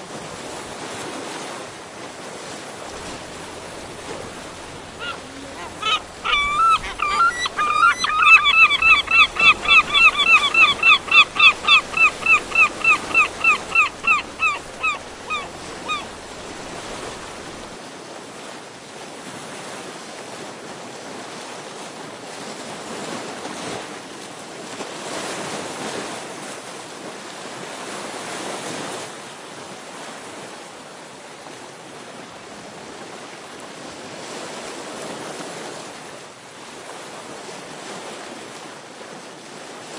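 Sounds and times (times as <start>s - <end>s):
waves breaking at cliffs: 0.0s - 39.9s
bird calling rapidly: 3.0s - 17.7s.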